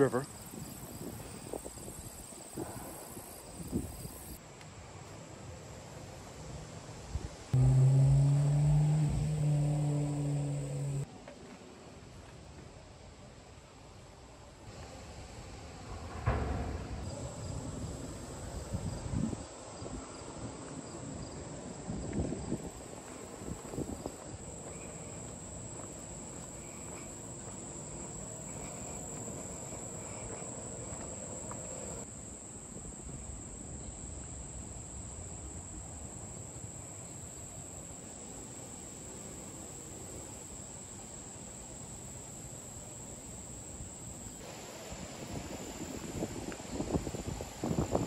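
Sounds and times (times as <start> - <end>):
crickets chirring: 0.0 - 4.4, 7.6 - 11.1, 16.4 - 48.0
bumps: 7.6 - 11.0
low rumble on microphone: 7.6 - 11.1.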